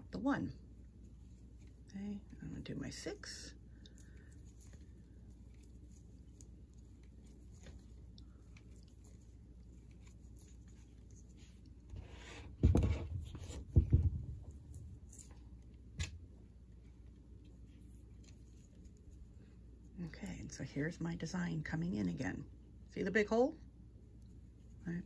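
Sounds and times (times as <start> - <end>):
rustling handling noise: 0.6 - 20.6.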